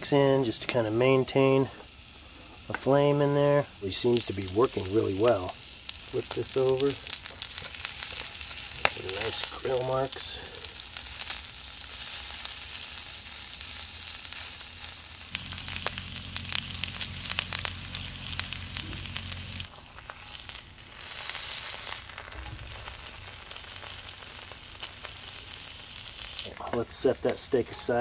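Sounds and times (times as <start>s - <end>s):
steak sizzling on grill plate: 2.0s - 28.0s
low hum: 15.3s - 19.7s.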